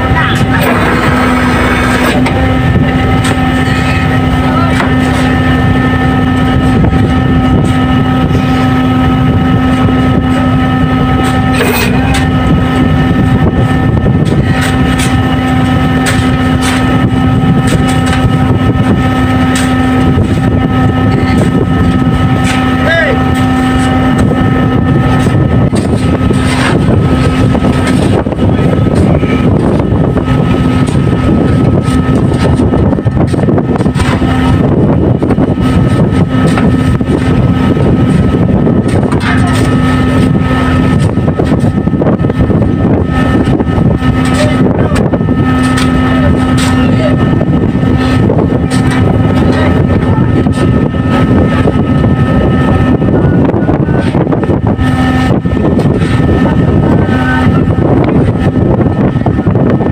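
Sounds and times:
boat engine droning: 0.0 - 59.9
low hum: 0.0 - 59.9.

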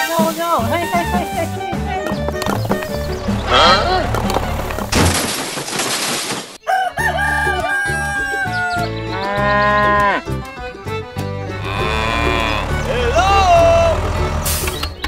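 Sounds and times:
background music with beat: 0.0 - 4.9
rooster crowing: 6.6 - 8.9.

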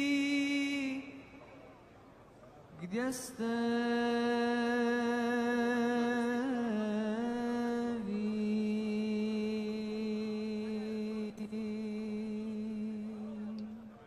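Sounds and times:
person chanting: 0.0 - 1.5, 2.8 - 14.0.

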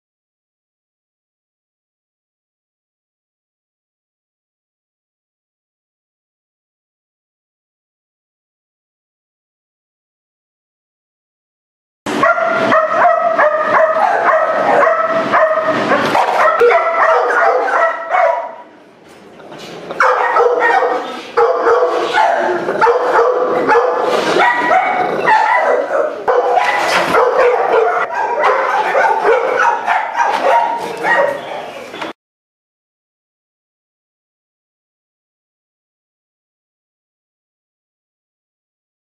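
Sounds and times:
dogs barking loudly: 12.1 - 18.8, 19.7 - 31.9.

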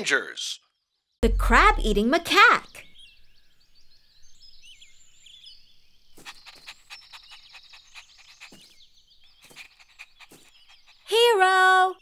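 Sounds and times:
birds chirping: 0.6 - 12.0
cartoon puppy panting: 6.2 - 8.8, 9.4 - 11.5.

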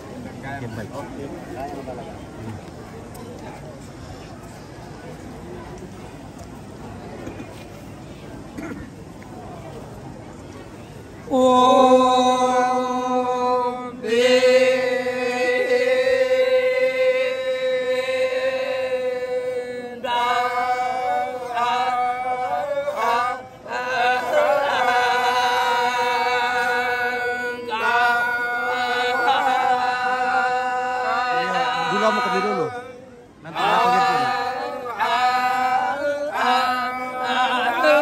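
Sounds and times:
group of voices chanting: 11.3 - 38.0.

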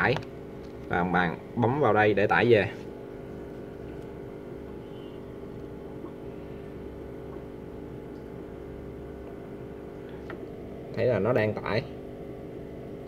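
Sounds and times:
low background hum: 0.0 - 13.0
faint held tones: 3.8 - 10.4.

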